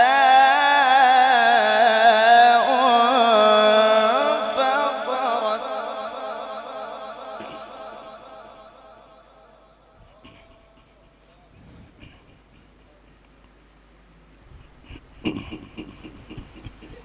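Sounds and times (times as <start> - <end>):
man reciting melodically: 0.0 - 9.0.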